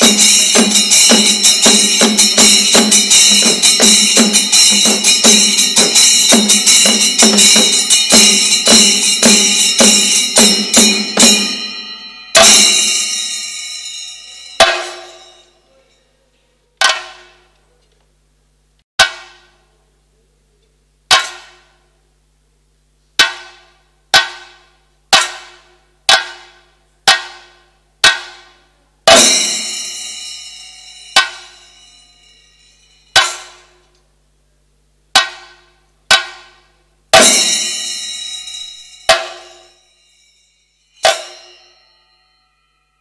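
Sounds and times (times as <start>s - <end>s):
drum strokes: 0.0s - 15.6s, 16.8s - 17.6s, 19.0s - 19.8s, 23.2s - 33.9s, 35.1s - 42.1s
hand cymbals ringing: 0.0s - 16.2s, 29.1s - 33.9s, 36.2s - 43.0s.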